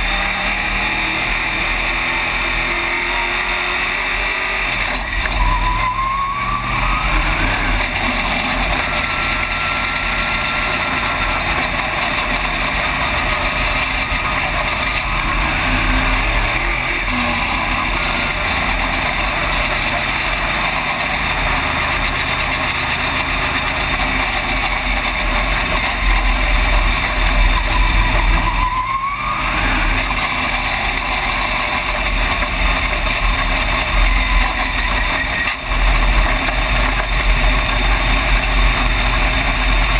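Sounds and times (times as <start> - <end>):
short rising whine: 0.0 - 18.4
race car engine running hard: 0.0 - 39.9.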